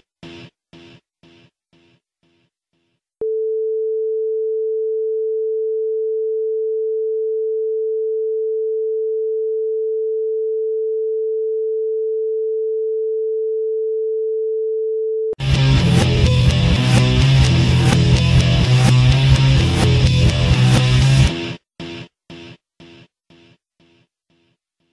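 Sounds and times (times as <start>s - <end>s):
heavy rock music with electric guitar: 15.4s - 22.5s.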